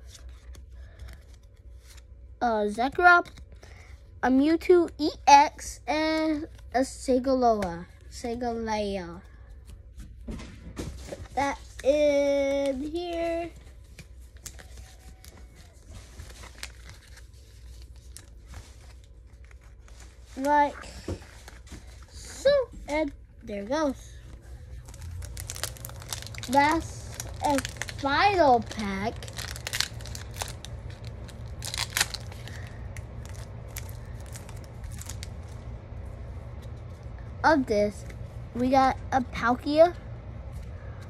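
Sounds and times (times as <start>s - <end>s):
trading cards rustling: 10.8s - 37.2s
foil wrapper crinkling and tearing: 12.4s - 20.5s, 24.7s - 35.6s.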